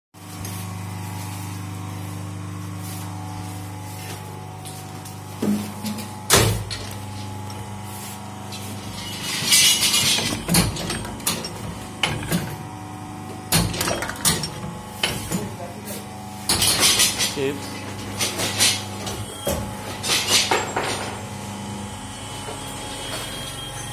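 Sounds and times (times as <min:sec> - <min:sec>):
machine motor hum: 0:00.2 - 0:16.6, 0:17.3 - 0:23.9.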